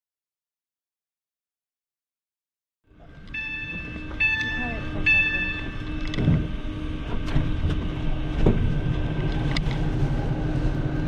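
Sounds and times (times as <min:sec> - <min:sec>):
train rumble and hum: 0:02.9 - 0:11.0.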